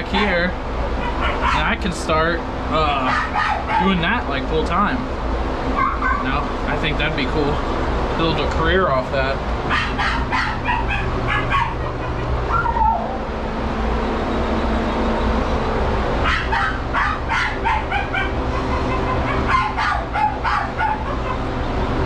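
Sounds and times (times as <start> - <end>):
dogs barking and yipping: 0.0 - 1.8, 2.9 - 4.2, 5.6 - 6.6, 9.5 - 13.4, 16.1 - 21.9
steady low hum: 0.0 - 22.0
dog whining: 0.9 - 1.7, 3.0 - 4.0, 5.7 - 6.5, 9.6 - 13.3, 16.2 - 21.6.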